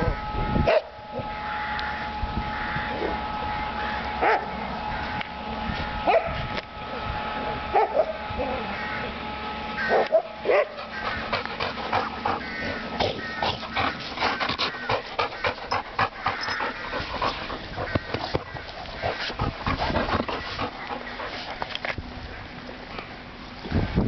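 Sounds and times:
dogs panting: 0:09.9 - 0:22.0.

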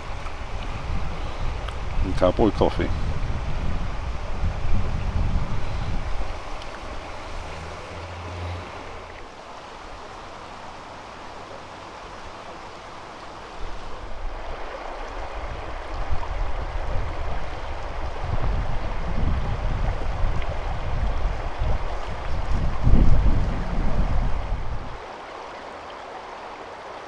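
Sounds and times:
wind buffeting microphone: 0:00.0 - 0:09.2, 0:13.6 - 0:25.0
river flowing over stones: 0:00.0 - 0:27.0.

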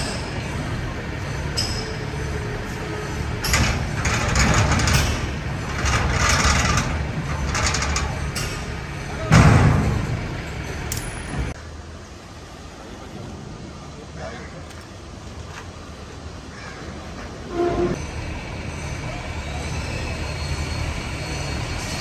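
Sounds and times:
truck idling: 0:00.0 - 0:14.4
metal ramps scraping and clanking: 0:03.4 - 0:10.3.

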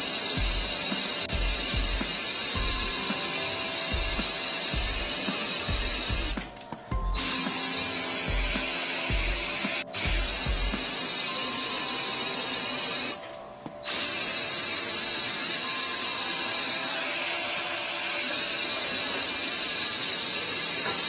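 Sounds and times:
drain cleaning machine whine: 0:00.0 - 0:13.2.

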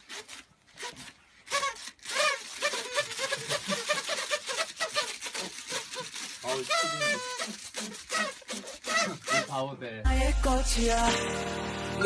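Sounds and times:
party blowers tooting: 0:00.0 - 0:09.6.

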